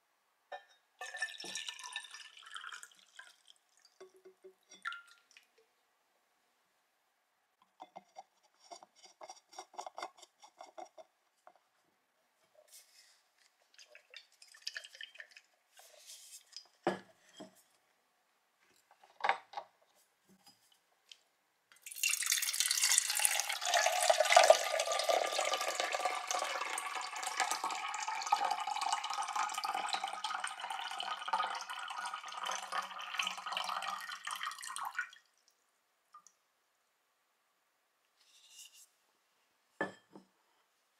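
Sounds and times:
water pouring into a jug: 0:01.0 - 0:04.0, 0:13.8 - 0:15.8, 0:21.8 - 0:35.5.

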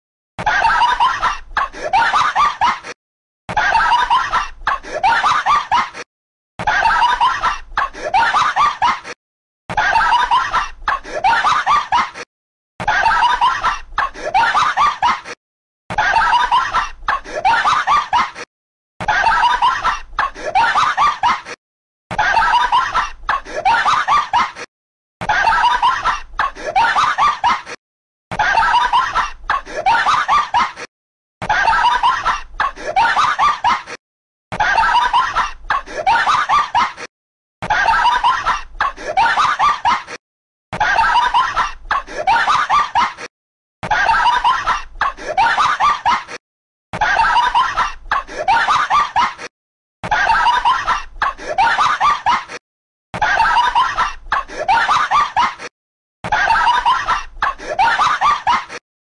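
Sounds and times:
person snickering laugh: 0:47.0 - 0:52.6, 0:56.3 - 0:58.8.

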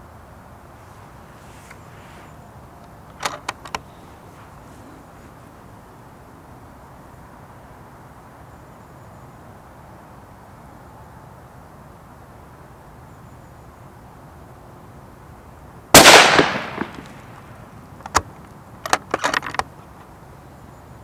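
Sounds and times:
rifle shot: 0:16.0 - 0:17.3.

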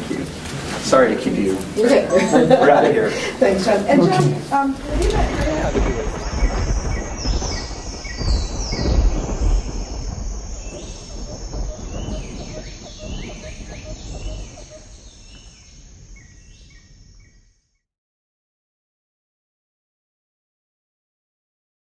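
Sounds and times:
birds chirping: 0:01.1 - 0:17.6.

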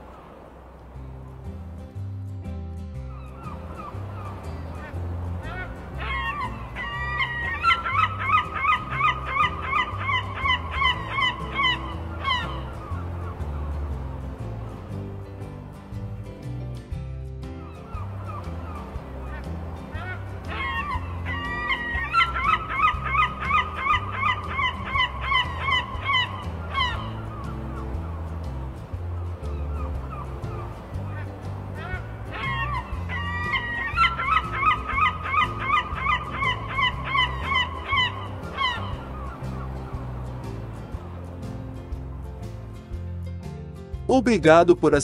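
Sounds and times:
background music: 0:00.0 - 0:45.0
gull crying: 0:03.1 - 0:14.2, 0:17.6 - 0:28.4, 0:29.0 - 0:40.8.

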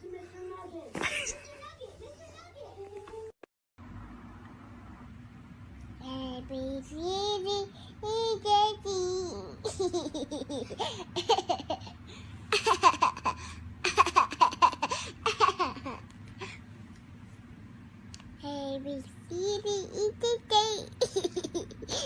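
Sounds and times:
baby giggling: 0:19.3 - 0:22.0.

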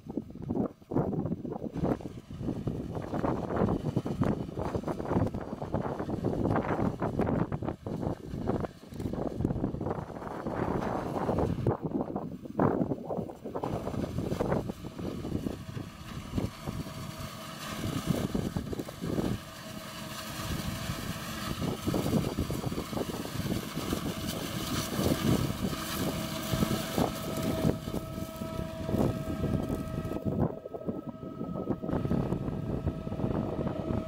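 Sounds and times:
forage harvester drone and whine: 0:00.0 - 0:34.0
wind buffeting microphone: 0:00.0 - 0:34.0
tractor hauling trailer: 0:13.3 - 0:34.0.

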